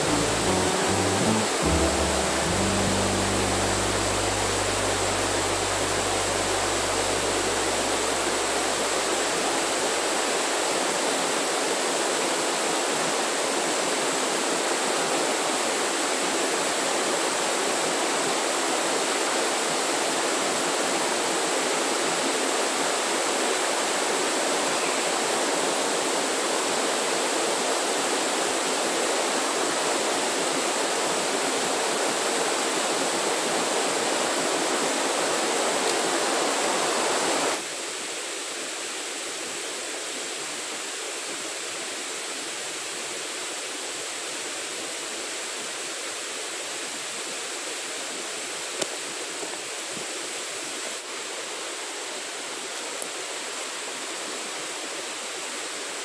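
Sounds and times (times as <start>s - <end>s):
low music notes: 0.0s - 9.7s
rushing water: 0.0s - 56.0s.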